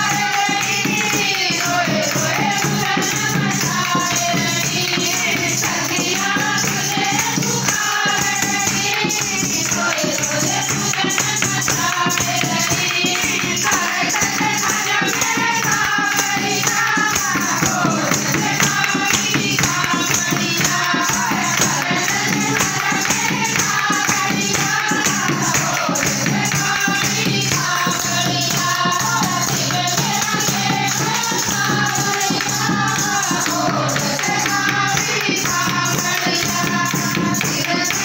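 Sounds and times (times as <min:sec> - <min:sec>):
chorus singing devotional song: 0:00.0 - 0:38.0
jingling percussion beat: 0:00.0 - 0:38.0.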